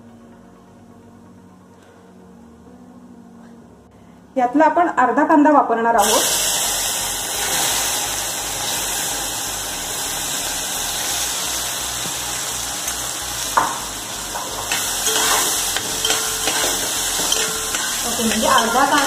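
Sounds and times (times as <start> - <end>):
onion sizzling in hot oil: 6.0 - 19.0.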